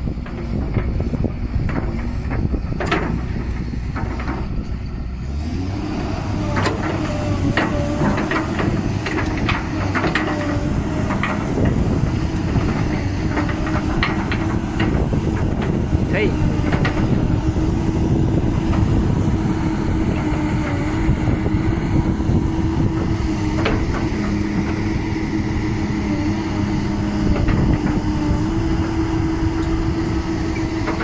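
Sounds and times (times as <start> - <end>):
excavator diesel engine running: 0.0 - 31.0
hydraulic whine: 0.0 - 31.0
metallic knocks and clanks: 0.2 - 4.9, 6.5 - 15.8, 16.6 - 17.2.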